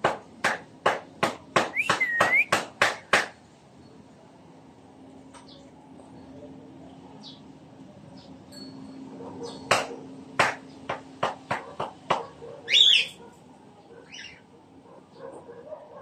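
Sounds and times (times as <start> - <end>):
bird tapping: 0.4 - 3.3
cockatiel chirping: 12.7 - 13.2.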